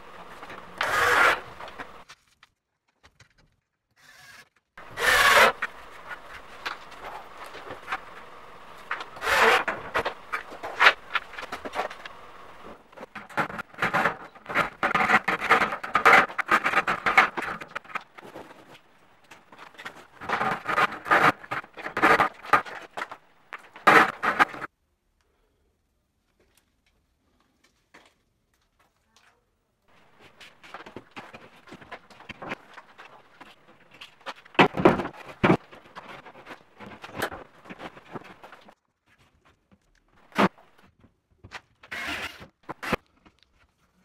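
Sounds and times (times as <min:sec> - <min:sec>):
plastic conduit rasping against metal: 0:13.0 - 0:18.8, 0:19.5 - 0:24.7.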